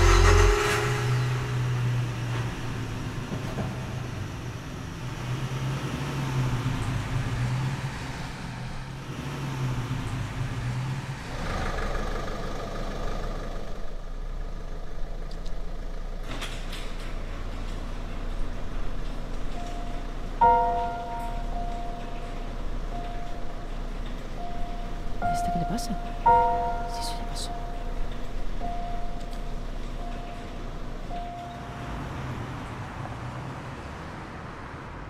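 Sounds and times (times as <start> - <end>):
car engine running: 0.0 - 4.8.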